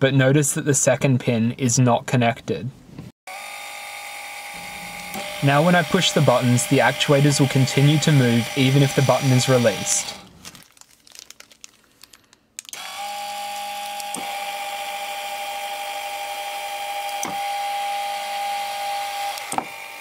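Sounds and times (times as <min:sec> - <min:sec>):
linear actuator motor whine: 0:03.3 - 0:10.3, 0:12.8 - 0:20.0.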